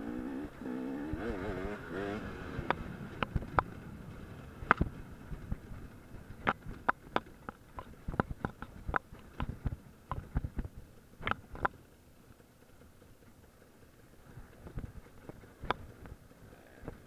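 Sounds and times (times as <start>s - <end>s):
dirt bike knocks and rattles: 1.9s - 11.8s, 14.2s - 17.0s.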